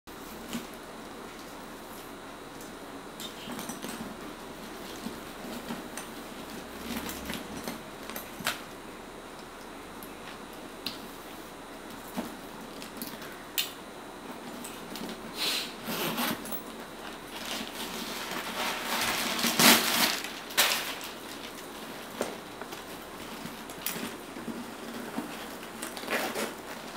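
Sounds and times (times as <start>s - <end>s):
plastic bag rustling: 17.0s - 26.9s.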